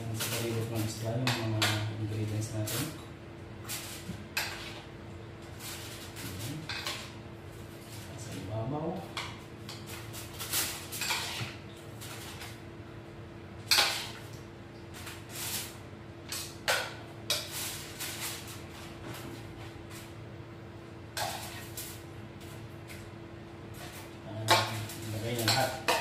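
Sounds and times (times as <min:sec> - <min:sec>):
spoon scraping a bowl: 0:09.7 - 0:12.2
foil rustling: 0:17.5 - 0:19.0.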